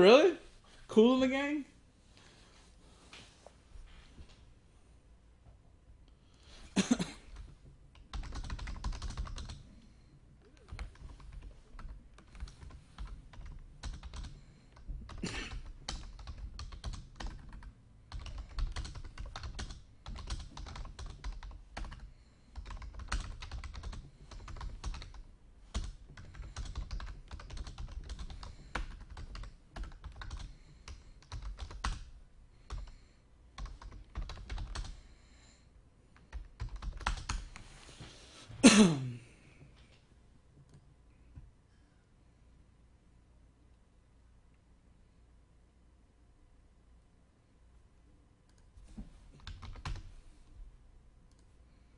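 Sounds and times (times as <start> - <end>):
typing on a keyboard: 7.3 - 9.6, 10.6 - 33.0, 33.6 - 35.0, 36.2 - 37.6, 49.4 - 50.1.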